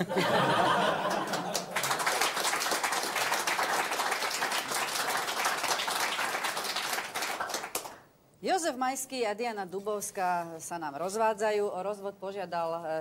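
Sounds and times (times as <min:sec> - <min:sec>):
audience applauding: 0:00.8 - 0:08.0.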